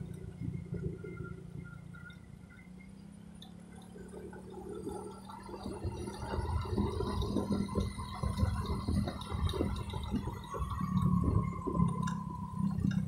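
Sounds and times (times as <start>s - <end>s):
vehicle engine hum: 0.0s - 13.0s
wind buffeting on microphone: 5.8s - 13.0s.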